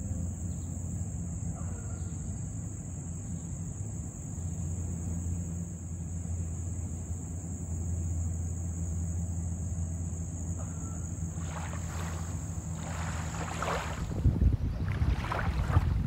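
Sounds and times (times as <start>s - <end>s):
boat motor humming: 3.8s - 16.0s
water rushing: 11.3s - 16.0s
wind gusts: 11.4s - 16.0s.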